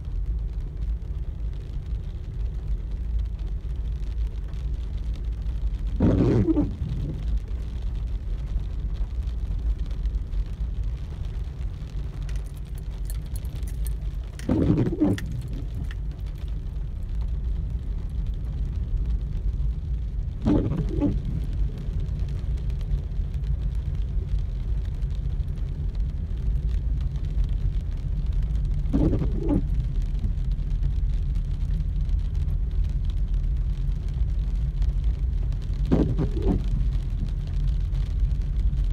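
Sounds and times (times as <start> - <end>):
car driving through heavy rain: 0.0 - 38.9
windshield wiper sweeping: 5.4 - 9.6, 10.7 - 22.7, 28.8 - 31.0, 34.2 - 38.9.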